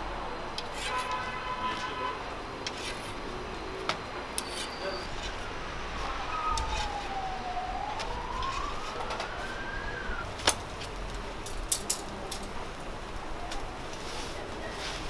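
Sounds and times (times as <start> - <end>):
background noise: 0.0 - 15.0
siren wailing: 4.6 - 10.4.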